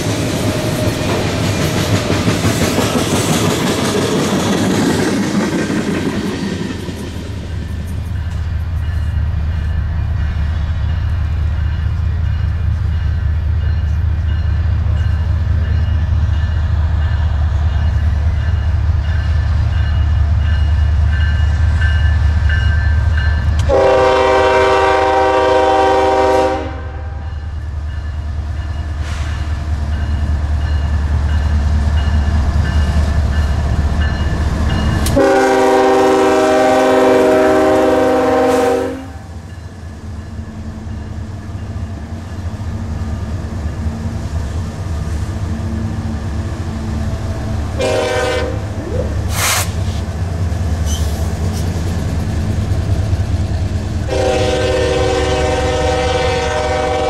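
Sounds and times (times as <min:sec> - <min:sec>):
train wheels rolling on rails: 0:00.0 - 0:26.6, 0:27.2 - 0:57.0
locomotive air horn blasts: 0:23.7 - 0:27.3, 0:35.1 - 0:39.4, 0:47.8 - 0:49.7, 0:54.1 - 0:57.0.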